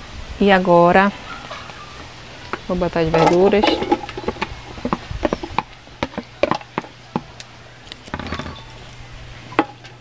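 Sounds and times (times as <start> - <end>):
utensil scraping plastic plate: 3.1 - 6.6.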